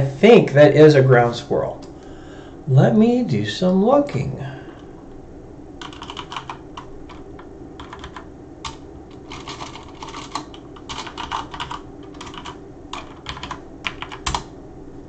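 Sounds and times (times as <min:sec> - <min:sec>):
typing on computer keyboard: 0:05.8 - 0:14.5.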